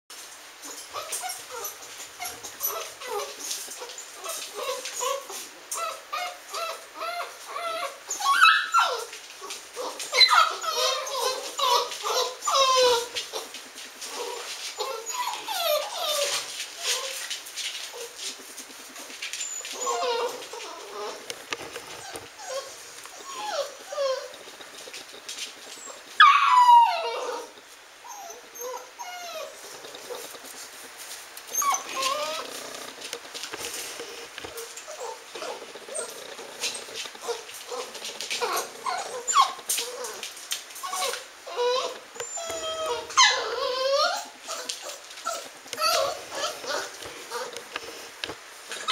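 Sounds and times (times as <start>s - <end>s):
puppy whining and whimpering: 0.6s - 18.4s, 19.0s - 21.3s, 21.9s - 24.6s, 25.7s - 30.3s, 31.5s - 32.9s, 34.2s - 47.5s.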